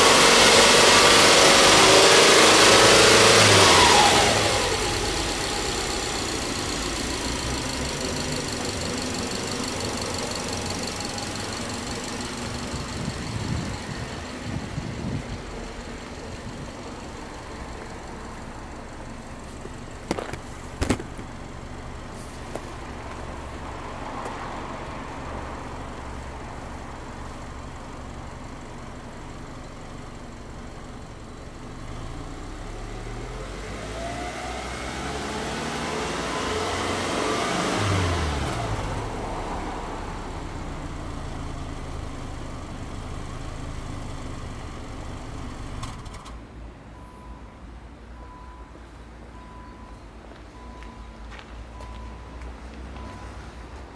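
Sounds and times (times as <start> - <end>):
car engine idling and revving: 0.0 - 53.9
sharp knocks: 20.1 - 21.2.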